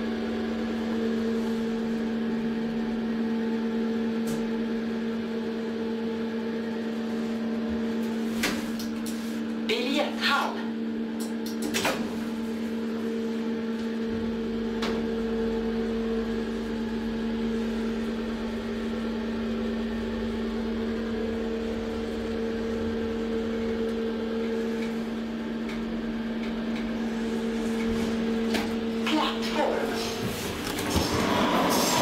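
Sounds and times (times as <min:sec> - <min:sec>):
hydraulic pump hum: 0:10.7 - 0:32.0
elevator car low rumble: 0:12.0 - 0:32.0.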